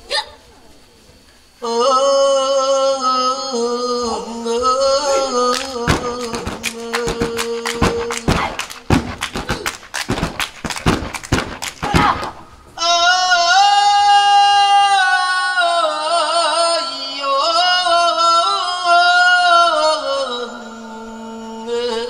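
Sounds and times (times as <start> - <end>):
solo voice singing held notes: 1.6 - 8.7
sharp percussive strikes: 5.9 - 12.4.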